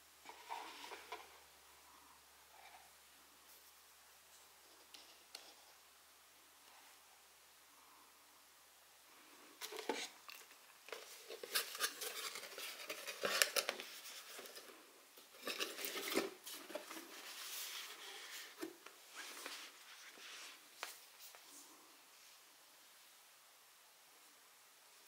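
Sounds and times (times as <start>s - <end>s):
cardboard rustling and crinkling: 9.6s - 21.5s.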